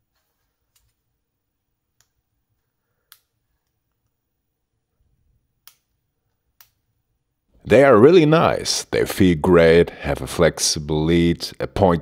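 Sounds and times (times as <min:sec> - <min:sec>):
faint sharp plastic clicks: 0:01.9 - 0:04.2, 0:05.6 - 0:06.8.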